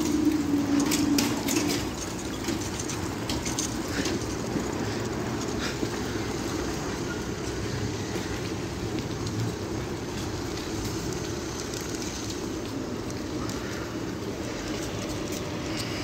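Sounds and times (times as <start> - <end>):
diesel train idling rumble: 0.0 - 16.0.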